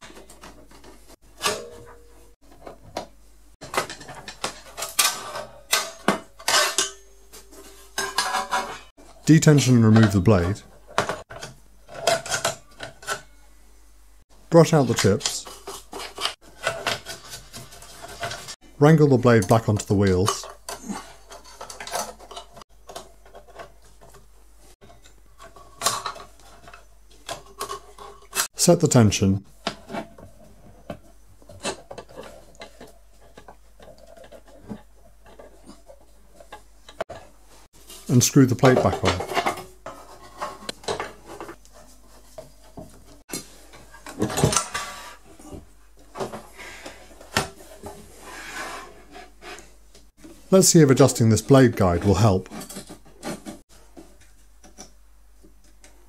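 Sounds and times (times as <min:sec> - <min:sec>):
bandsaw metal clatter: 0:03.6 - 0:09.0.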